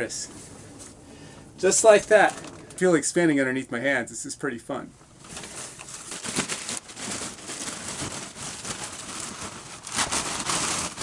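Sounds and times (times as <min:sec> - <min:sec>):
plastic wrapping crinkling: 0:05.2 - 0:11.0.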